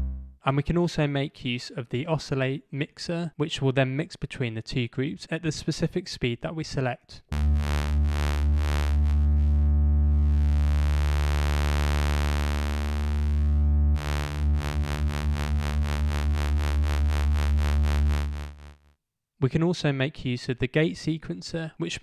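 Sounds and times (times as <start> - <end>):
pulsing synthesizer pad chord: 7.4 - 18.6.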